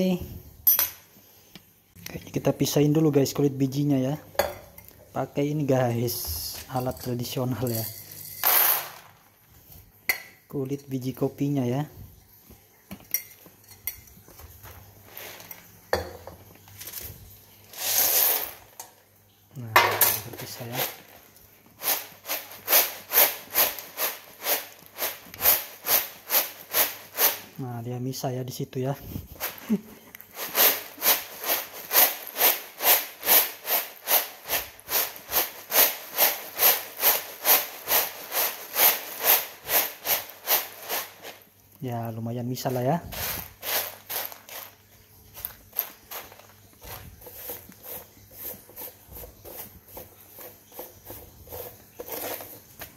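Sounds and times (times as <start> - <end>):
coffee beans pouring onto a tray: 6.1 - 9.3, 14.4 - 19.0, 19.7 - 27.6, 29.4 - 41.5, 42.6 - 52.9.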